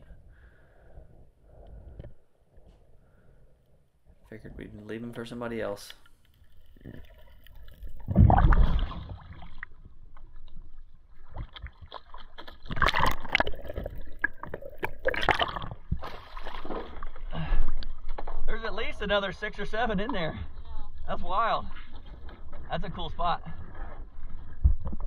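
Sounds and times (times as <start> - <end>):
water gurgling and sloshing: 6.3 - 25.0.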